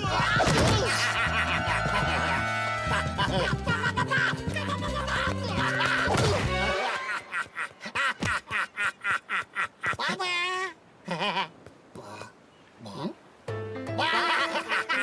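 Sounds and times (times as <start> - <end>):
cartoon creature laughing: 0.0 - 11.5, 13.9 - 15.0
cartoon music: 13.5 - 15.0.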